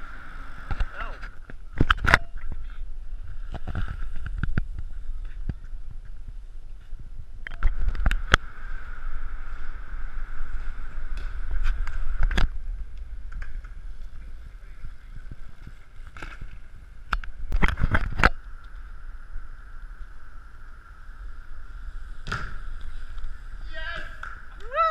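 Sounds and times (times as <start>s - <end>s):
wind noise: 0.0s - 24.9s
bike landing clacks: 22.2s - 24.6s.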